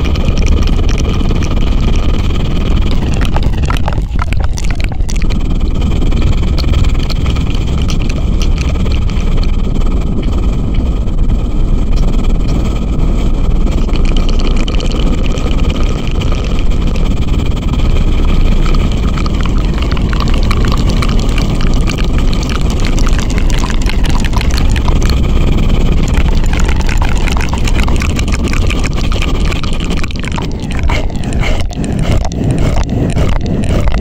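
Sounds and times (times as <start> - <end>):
sharp clicks: 0.0 - 10.9
rumbling flutter on microphone: 0.0 - 34.0.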